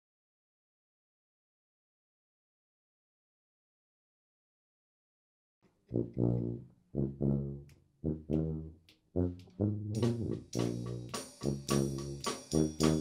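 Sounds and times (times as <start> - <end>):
brass band playing: 6.0 - 13.0.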